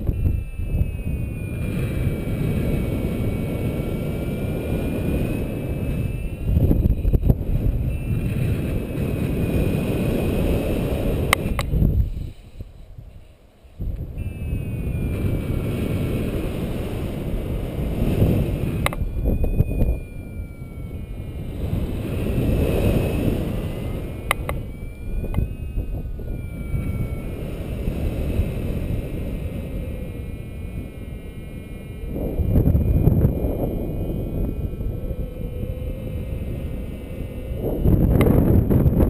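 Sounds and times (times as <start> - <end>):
high whistling tones: 0.0 - 39.0
wind buffeting microphone: 0.0 - 39.0
sharp clicks: 11.3 - 11.8, 18.8 - 19.9, 24.2 - 24.6.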